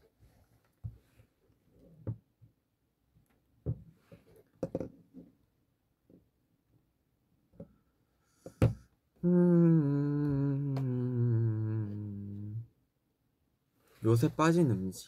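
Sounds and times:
man humming low: 9.2 - 12.7.

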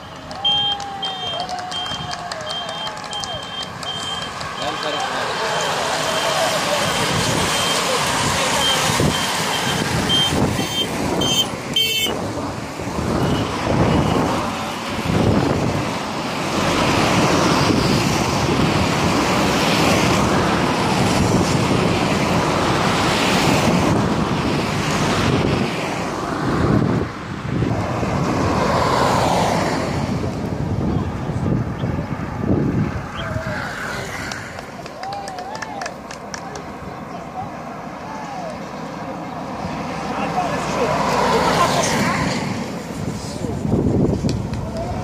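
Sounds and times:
short high beeps: 0.0 - 7.8
cars driving past: 0.0 - 45.0.

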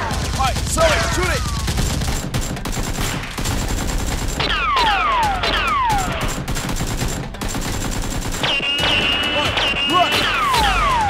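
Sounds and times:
automatic gunfire: 0.0 - 11.0
falling whistles: 8.5 - 11.0.

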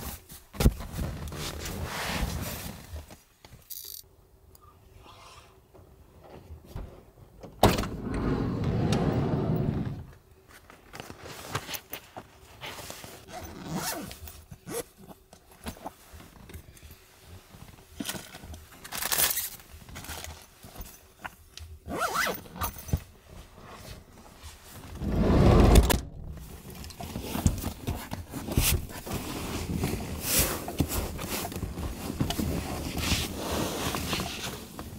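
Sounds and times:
scrapes and knocks of handling: 22.7 - 34.9.

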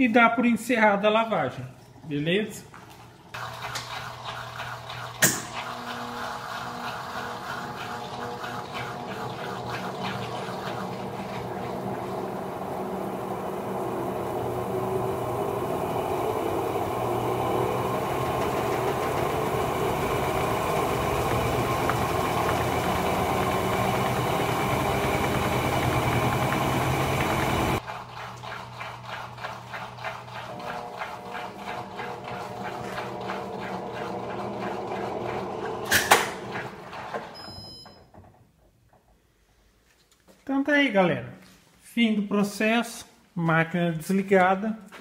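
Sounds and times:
washing machine spinning: 2.8 - 38.9.

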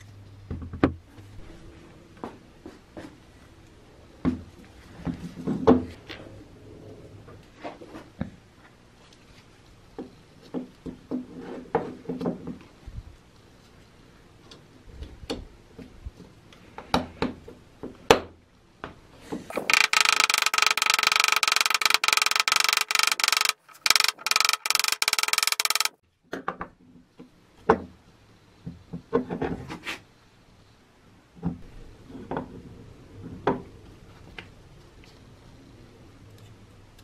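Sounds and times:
loud buzzing rattle: 19.5 - 26.0.

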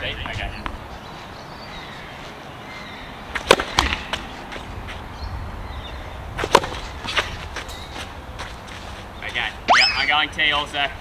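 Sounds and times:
racket hitting tennis ball: 3.3 - 4.3, 6.4 - 7.7.

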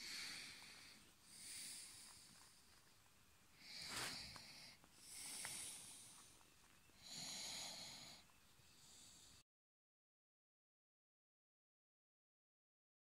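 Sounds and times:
soft hissy breathing: 0.0 - 9.4.

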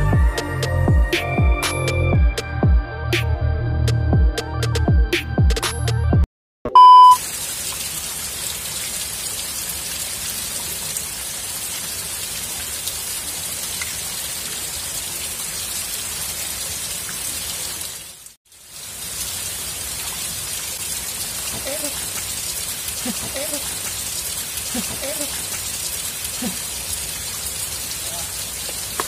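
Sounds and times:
short loud beep: 6.7 - 7.2
flowing river water: 7.2 - 29.0.

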